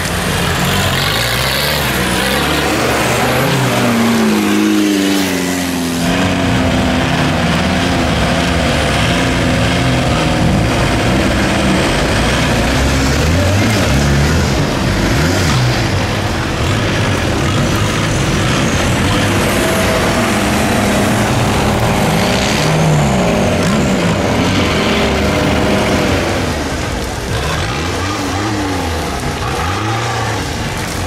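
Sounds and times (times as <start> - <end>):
vehicle engine revving: 0.0 - 31.0.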